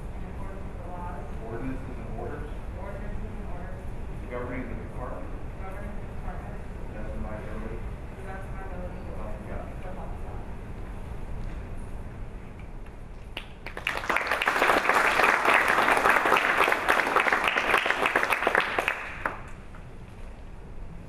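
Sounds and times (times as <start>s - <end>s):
audience applauding: 13.4s - 19.5s.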